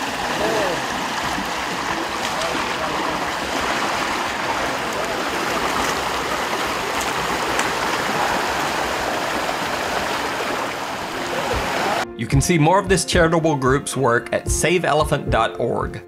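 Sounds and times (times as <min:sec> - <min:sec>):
river water flowing: 0:00.0 - 0:12.2.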